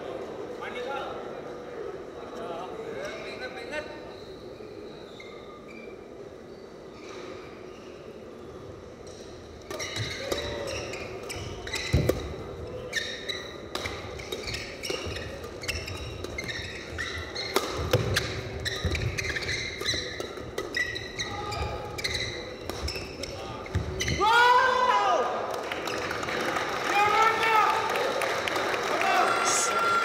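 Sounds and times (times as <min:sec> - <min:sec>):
shoes squeaking on court: 0:04.1 - 0:08.2, 0:09.2 - 0:24.2
rackets hitting shuttlecock: 0:13.6 - 0:21.2, 0:22.6 - 0:24.0.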